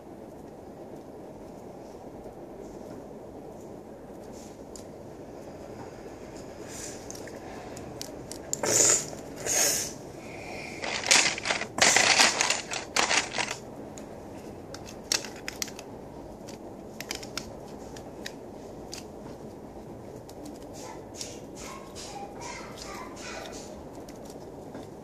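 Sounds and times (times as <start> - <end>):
plastic bricks rattling and scraping: 10.8 - 13.6.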